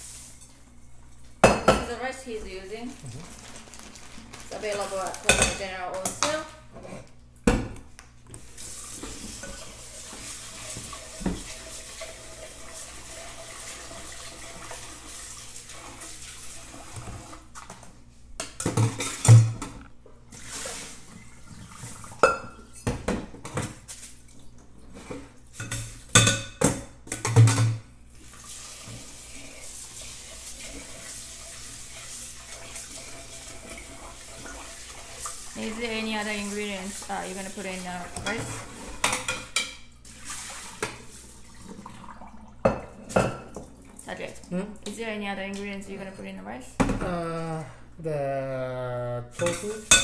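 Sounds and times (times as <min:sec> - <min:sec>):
tap running into sink: 0:09.0 - 0:12.2
dishes and pots clattering: 0:18.4 - 0:19.8, 0:22.1 - 0:23.8, 0:24.9 - 0:27.8, 0:38.2 - 0:39.9, 0:49.4 - 0:50.0.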